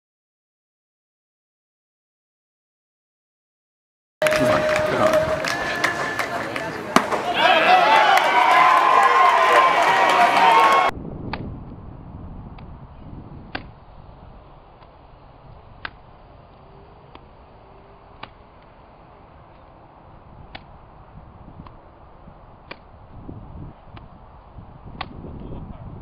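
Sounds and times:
low outdoor rumble: 10.9 - 26.0.

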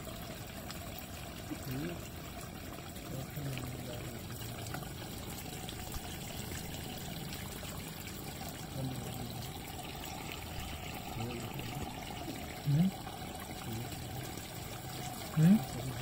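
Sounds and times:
water trickling and splashing: 0.0 - 16.0.

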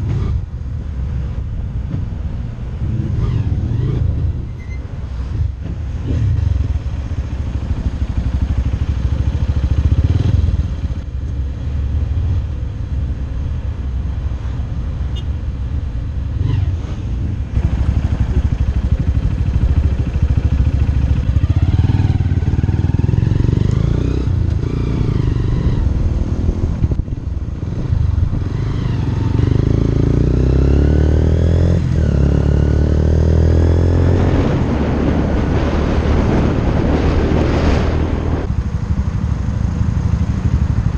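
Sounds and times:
motorcycle engine revving: 2.8 - 11.0, 16.4 - 38.5
wind noise: 16.2 - 38.9.

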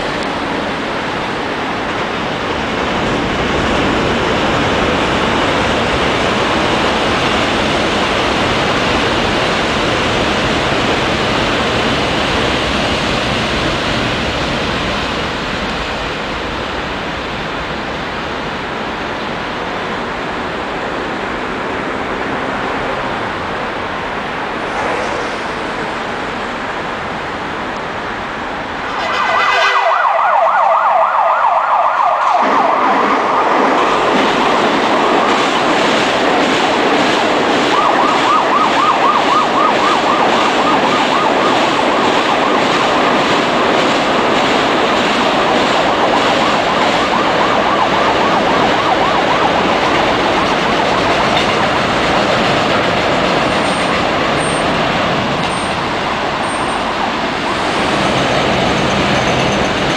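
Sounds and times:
train rumbling over bridge: 0.0 - 59.9
warbling emergency siren: 29.0 - 44.0, 45.4 - 52.0.

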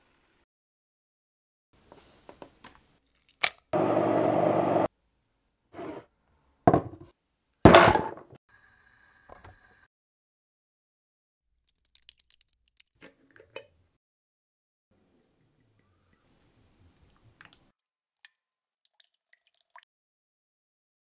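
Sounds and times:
stick blender running: 3.8 - 4.9
knife thunks on wooden board: 6.7 - 7.1, 7.7 - 8.2.

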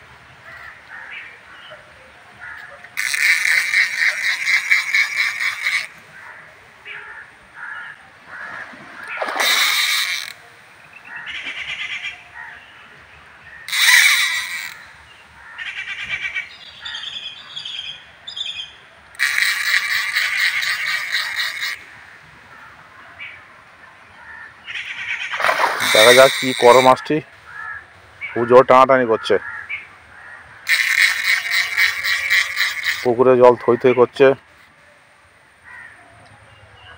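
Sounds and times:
fishing reel clicking: 3.0 - 6.0, 9.4 - 10.4, 13.7 - 14.8, 19.1 - 21.8, 25.8 - 27.0, 30.7 - 33.1.

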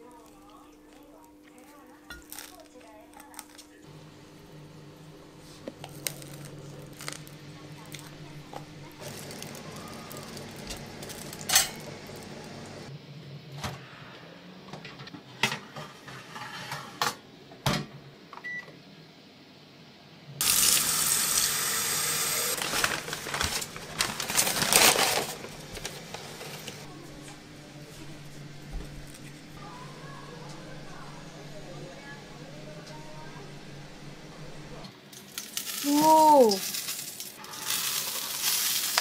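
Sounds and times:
tap water running: 4.2 - 12.9, 20.4 - 26.9
metal oven rack and dishes clinking: 11.4 - 12.0.

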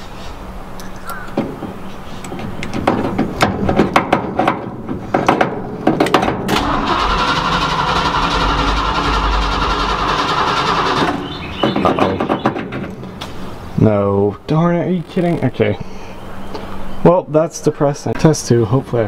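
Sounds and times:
engine cranking on starter: 6.4 - 11.7.

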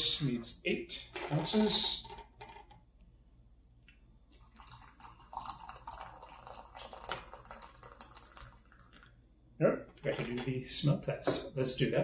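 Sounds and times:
water pouring into glass cup: 4.3 - 9.1.

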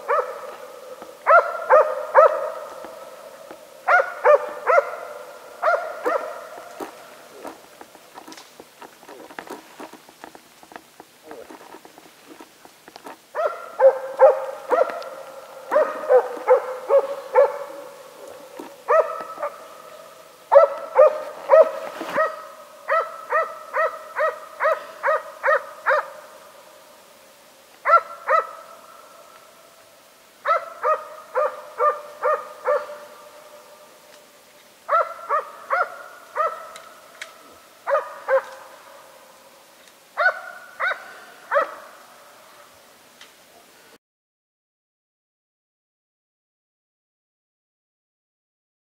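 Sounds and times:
dog barking: 0.0 - 3.2, 3.8 - 7.6, 13.3 - 19.8, 20.5 - 26.3, 27.8 - 28.8, 30.4 - 33.4, 34.9 - 37.0, 37.8 - 38.8, 40.2 - 42.0.

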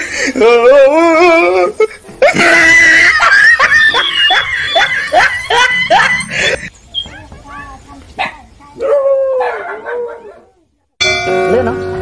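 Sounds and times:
person laughing loudly: 1.3 - 6.7.

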